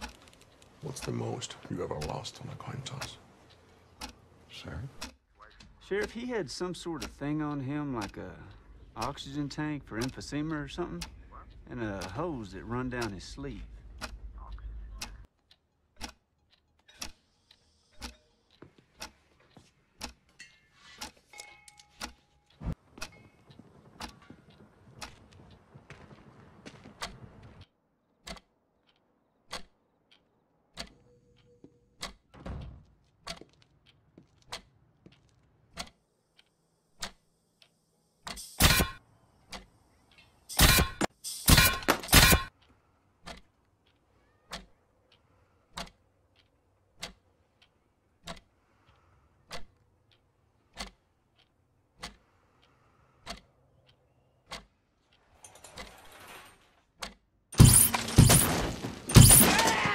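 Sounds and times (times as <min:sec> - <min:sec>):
slow even ticking: 0:00.0 - 0:26.1, 0:42.5 - 0:55.6
loud sharp blasts: 0:57.6 - 0:59.9.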